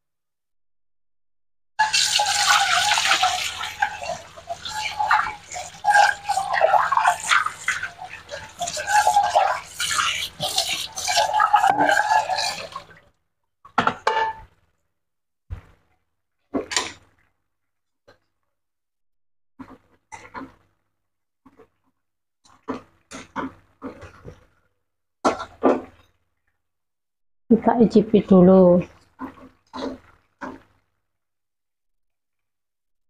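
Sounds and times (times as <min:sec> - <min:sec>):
sauce bubbling and popping: 0:01.8 - 0:13.1.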